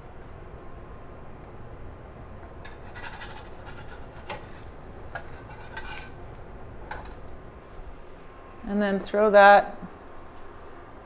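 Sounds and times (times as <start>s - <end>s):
low steady hum: 0.0s - 11.0s
spatula scraping skillet: 2.6s - 7.2s.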